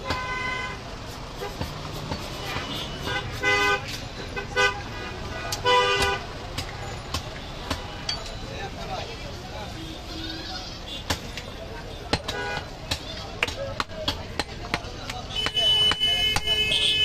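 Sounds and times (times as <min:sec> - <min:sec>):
cleaver chopping meat on wood: 0:01.4 - 0:03.4, 0:05.5 - 0:08.0, 0:11.0 - 0:11.4, 0:12.0 - 0:16.6
car horn toots: 0:02.5 - 0:06.2, 0:15.3 - 0:17.0.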